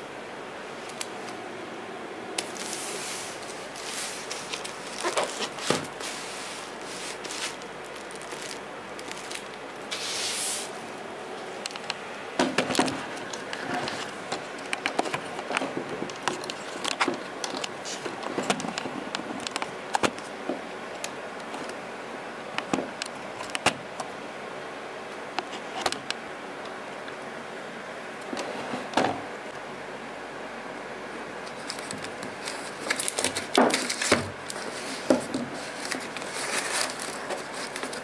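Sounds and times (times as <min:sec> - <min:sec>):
plastic rustling: 0:02.4 - 0:10.8, 0:11.4 - 0:21.8, 0:31.4 - 0:38.0.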